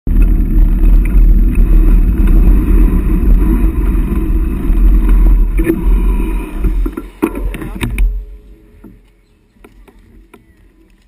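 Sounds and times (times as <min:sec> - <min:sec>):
wind buffeting microphone: 0:00.1 - 0:08.2.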